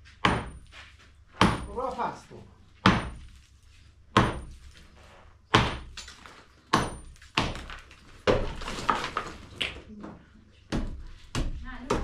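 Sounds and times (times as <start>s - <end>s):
heavy blows on masonry wall: 0.1s - 1.9s, 2.8s - 3.3s, 4.1s - 4.6s, 5.5s - 6.0s, 6.7s - 8.6s, 10.6s - 12.0s.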